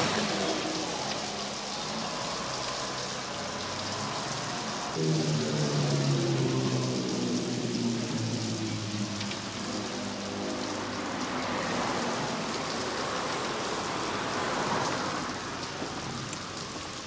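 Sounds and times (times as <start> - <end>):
steady rain falling: 0.0 - 17.0
low hum: 5.0 - 9.8.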